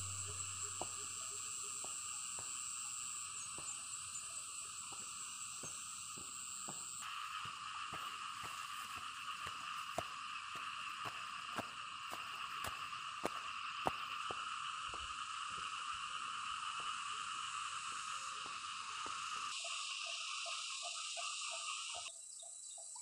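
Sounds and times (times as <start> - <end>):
footsteps on dirt path: 0.0 - 15.7
frogs and insects calling: 0.0 - 23.0.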